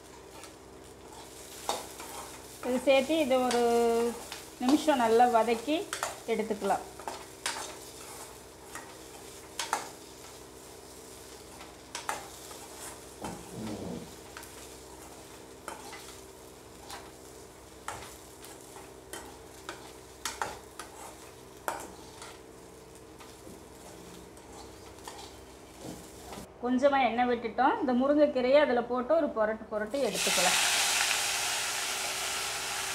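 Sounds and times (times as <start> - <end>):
faint frying sizzle: 0.0 - 26.5, 29.8 - 32.9
metal ladle scraping a pan: 24.4 - 25.4.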